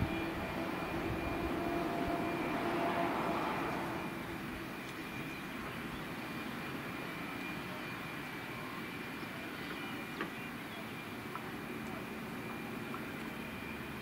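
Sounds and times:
jet engines rumbling with whine: 0.0s - 14.0s.

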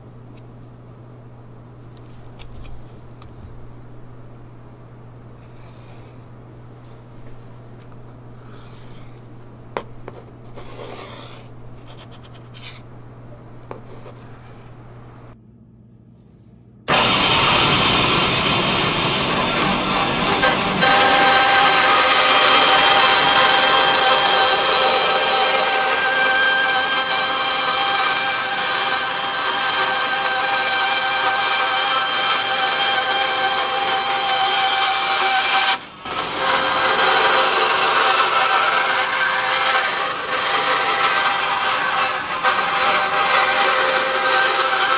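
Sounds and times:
band saw cutting fibreboard: 5.4s - 6.2s, 9.8s - 12.9s, 16.9s - 44.9s
pencil scratching along wood: 9.8s - 12.8s, 13.7s - 14.6s.

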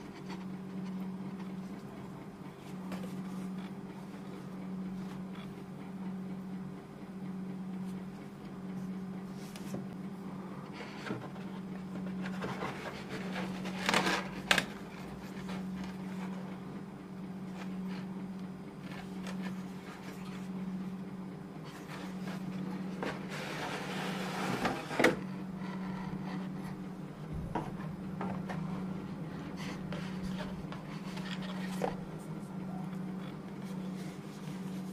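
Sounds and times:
steady low hum: 0.0s - 34.9s
cardboard packaging rustling: 10.8s - 16.4s.

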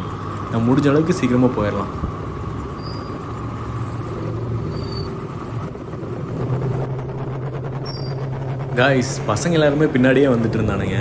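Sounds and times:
wind and road noise: 0.0s - 11.0s
motorcycle engine running: 2.0s - 11.0s.

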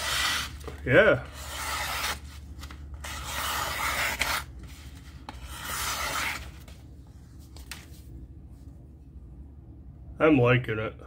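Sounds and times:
knife slicing paper: 1.2s - 4.5s, 5.3s - 6.6s.

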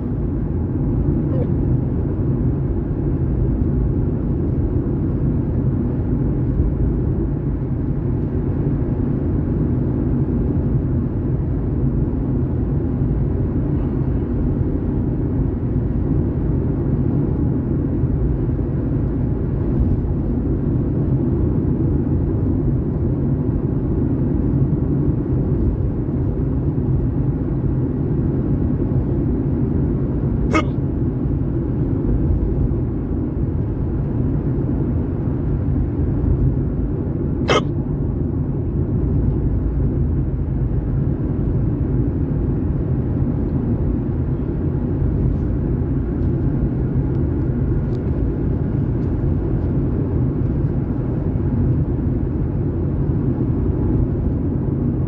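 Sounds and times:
car cabin road rumble: 0.0s - 55.0s
short sharp sound: 30.5s - 30.8s, 37.5s - 37.7s.

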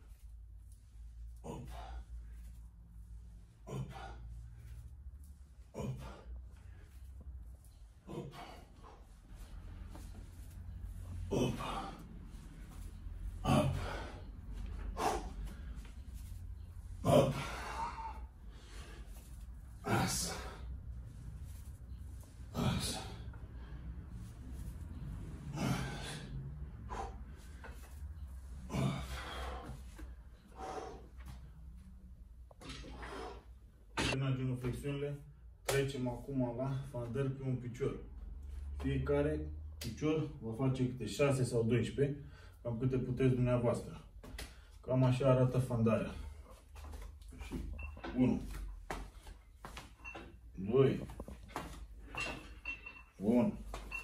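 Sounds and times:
steady low hum: 0.0s - 38.8s
man breathing hard: 1.1s - 7.3s, 8.0s - 31.8s
forceful exhalations: 8.1s - 16.4s, 17.0s - 20.8s, 22.4s - 24.7s, 25.4s - 28.0s, 28.6s - 31.4s.

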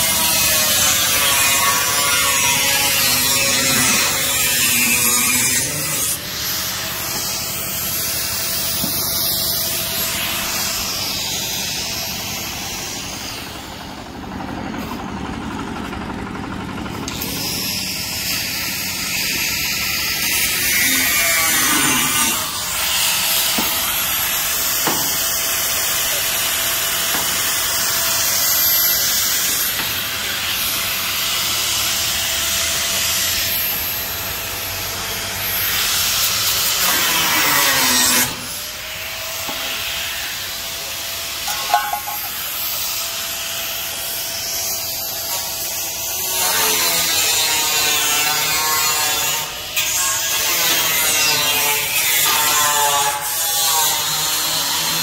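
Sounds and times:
angle grinder grinding metal: 0.0s - 14.0s, 17.0s - 55.0s
metal clatter: 41.5s - 42.6s.

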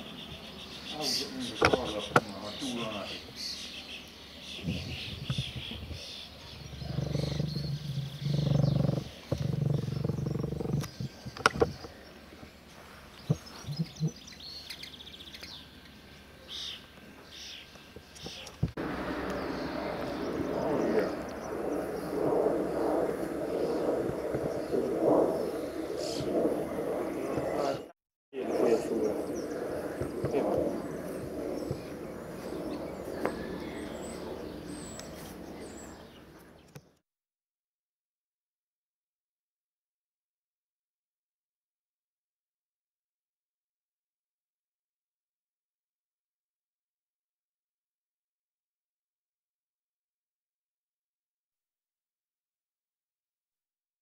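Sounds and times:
distant jet engine rumble: 0.0s - 36.8s
birds chirping: 0.0s - 37.0s
low steady hum: 18.2s - 27.6s.

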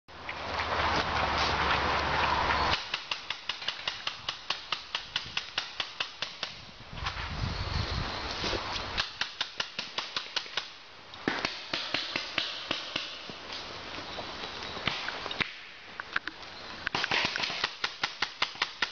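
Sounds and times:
paintball markers firing pops: 14.8s - 18.9s.

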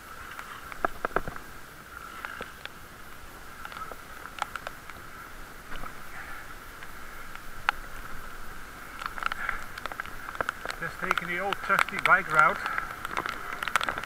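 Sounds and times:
bicycle tyres hissing on wet surface: 0.0s - 14.0s
bike clicks and knocks: 8.9s - 14.0s.

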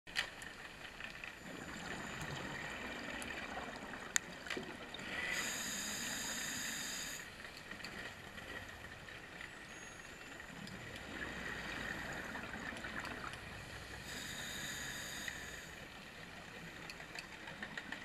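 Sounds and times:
hissing regulator inhale: 5.0s - 7.4s, 14.0s - 15.8s.

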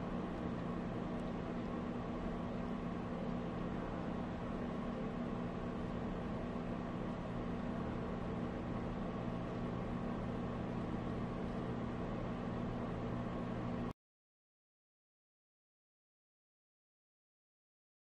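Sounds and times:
steady mechanical hum: 0.0s - 14.0s.

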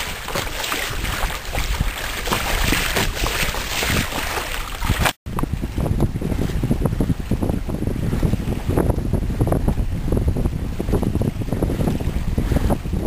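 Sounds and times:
small waves splashing: 0.0s - 8.8s
water rushing along boat hull: 0.0s - 13.0s
wind buffeting microphone: 0.0s - 13.0s.

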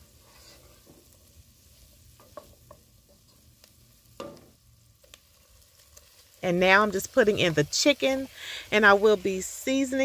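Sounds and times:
wooden spoon scraping pan: 0.0s - 1.2s
onion sizzling in butter: 0.0s - 10.0s.

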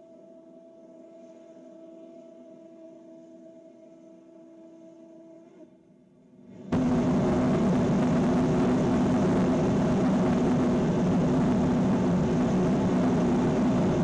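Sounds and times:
equipment humming: 6.5s - 14.0s
rocket engine rushing roar: 6.7s - 14.0s.

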